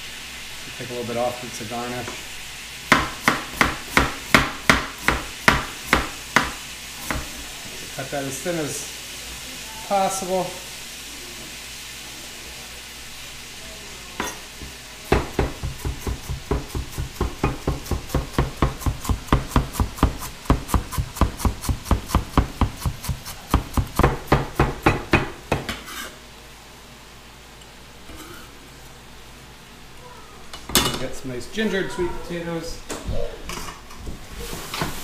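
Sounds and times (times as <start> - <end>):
faint sizzling pan: 0.0 - 35.0
knife chopping on plastic board: 2.9 - 7.3, 15.2 - 25.7.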